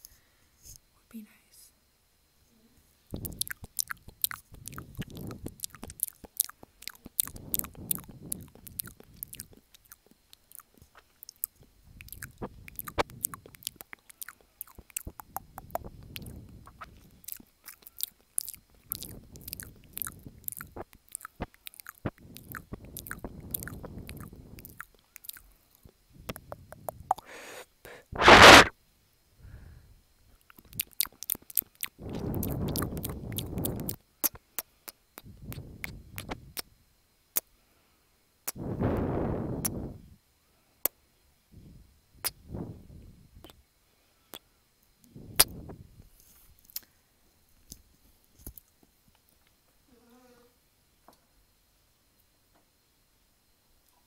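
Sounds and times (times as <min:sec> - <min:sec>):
wet lip and tongue clicks: 0:03.1 - 0:28.7, 0:30.4 - 0:36.7, 0:42.2 - 0:42.5, 0:43.4 - 0:43.6, 0:44.3 - 0:45.7, 0:46.6 - 0:46.9, 0:47.6 - 0:49.6
loud burst: 0:28.1 - 0:28.7.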